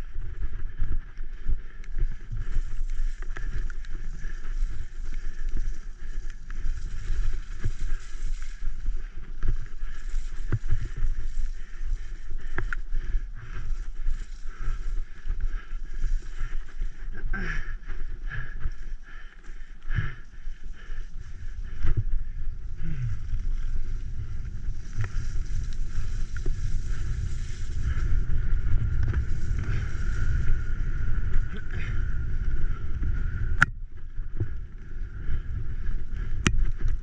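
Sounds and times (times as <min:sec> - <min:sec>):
bike rattling on dirt trail: 0:00.0 - 0:37.0
wind on microphone: 0:19.9 - 0:37.0.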